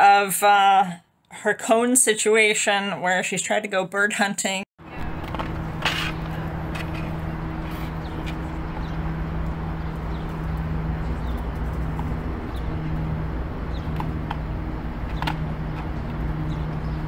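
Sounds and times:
low mechanical hum: 4.8s - 17.0s
traffic noise: 4.8s - 17.0s.

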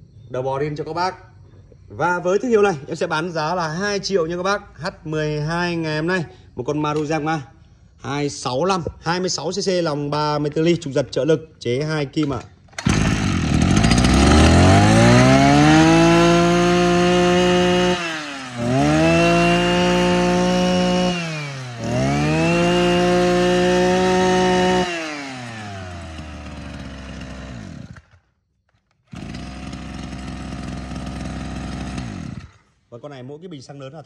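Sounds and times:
brush cutter engine idling: 12.2s - 28.2s, 28.8s - 32.8s
brush cutter engine revving: 12.3s - 28.2s, 29.0s - 32.8s.

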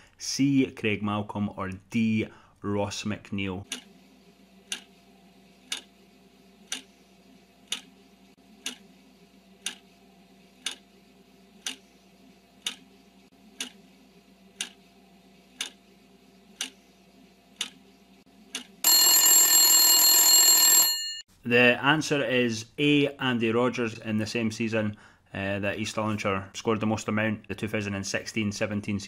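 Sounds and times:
clock ticking: 3.7s - 3.9s, 4.7s - 4.9s, 5.7s - 5.9s, 6.7s - 6.9s, 7.7s - 7.9s, 8.6s - 8.8s, 9.6s - 9.8s, 10.6s - 10.8s, 11.6s - 11.8s, 12.6s - 12.8s, 13.6s - 13.8s, 14.6s - 14.8s, 15.6s - 15.8s, 16.6s - 16.8s, 17.6s - 17.8s
alarm bell ringing: 18.8s - 21.2s.

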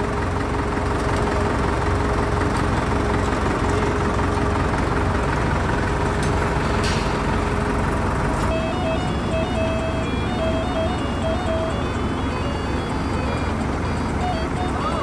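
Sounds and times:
diesel engine rumble: 0.0s - 15.0s
beeping electronic tune: 8.5s - 15.0s
faint steady whine: 8.5s - 15.0s.

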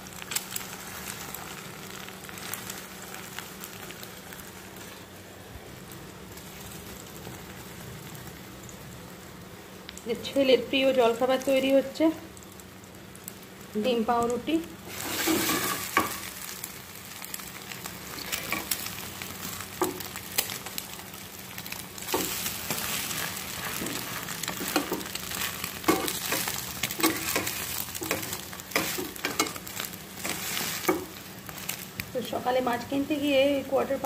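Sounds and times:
bread sizzling in oil: 0.0s - 34.0s
metal spatula scraping pan: 14.9s - 16.2s.

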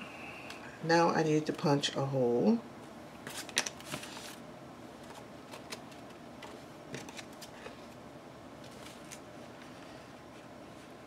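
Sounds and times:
paper rustling: 3.2s - 4.4s, 5.0s - 8.0s, 8.6s - 11.0s.

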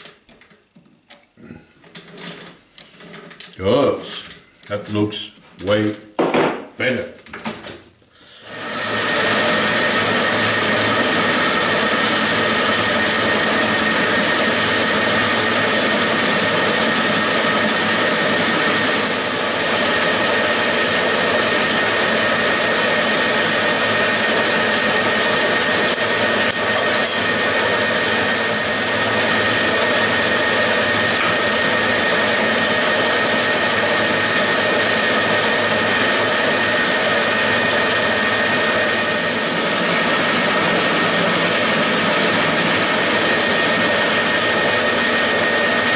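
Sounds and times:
metal lathe running: 8.4s - 45.9s.

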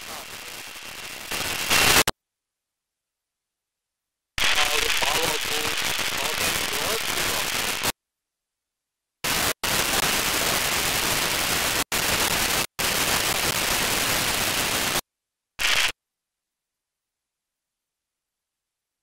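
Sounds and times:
radio static hiss: 0.0s - 2.1s, 4.4s - 8.0s, 9.2s - 15.0s, 15.6s - 16.0s.

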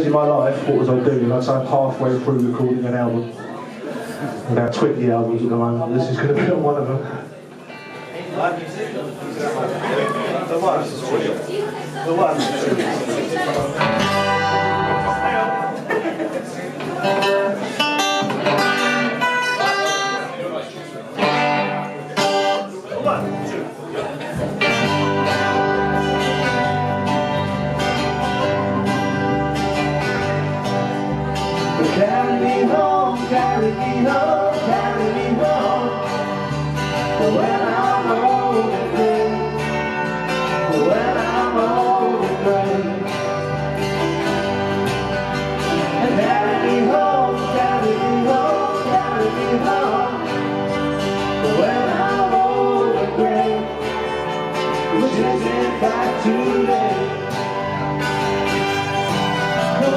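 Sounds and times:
live band playing: 13.4s - 20.4s, 21.0s - 59.9s
person singing: 31.6s - 43.4s, 45.7s - 57.9s, 59.3s - 59.9s.

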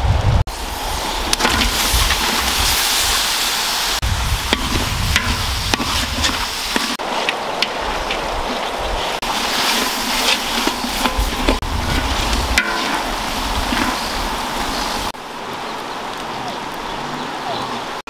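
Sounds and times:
food sizzling in hot oil: 0.5s - 7.0s, 9.0s - 15.2s.

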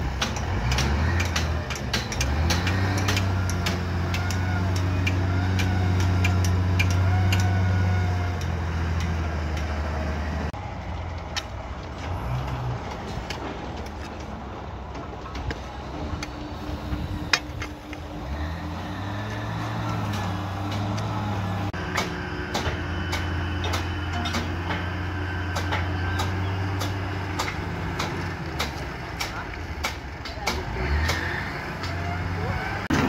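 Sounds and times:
sharp mechanical clicks and knocks: 0.0s - 9.8s, 19.3s - 32.0s
diesel engine under load: 0.0s - 33.0s
uneven mechanical noise: 0.0s - 33.0s.

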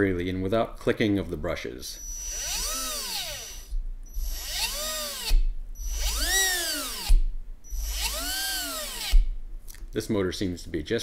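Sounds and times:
electric motor whine: 2.0s - 9.3s.

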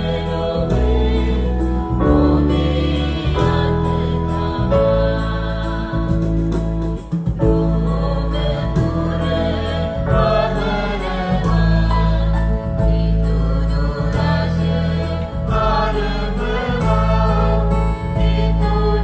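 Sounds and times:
heavy steady bass line: 0.0s - 19.0s
singing voices: 0.0s - 19.0s.

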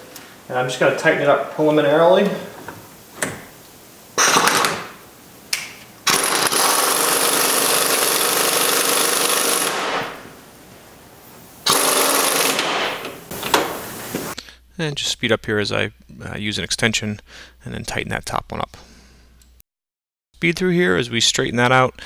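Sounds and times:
pneumatic impact wrench hammering: 4.2s - 4.9s, 6.0s - 10.2s, 11.6s - 14.0s.

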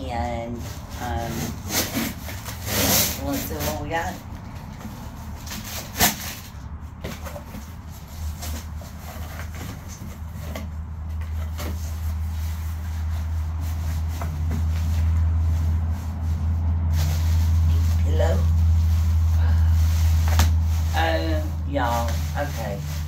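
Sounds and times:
low steady hum: 0.0s - 23.0s
tape peeling off cardboard box: 4.7s - 7.7s.

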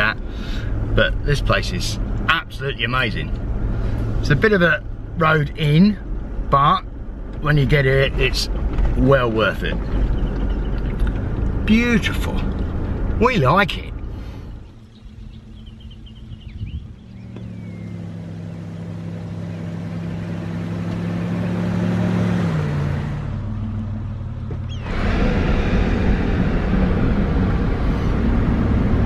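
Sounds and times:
engine and road noise in cabin: 0.0s - 29.0s
vehicle engine driving past: 13.9s - 29.0s
faint bird chirps: 14.5s - 19.7s.

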